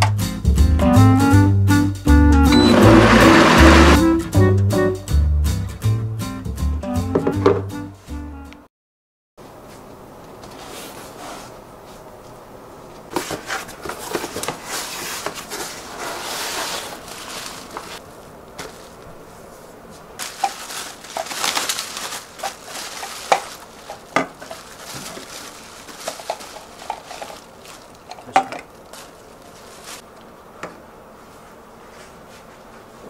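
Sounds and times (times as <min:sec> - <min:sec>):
plastic packaging rustling: 0:13.2 - 0:18.0, 0:18.6 - 0:19.1, 0:20.2 - 0:30.0.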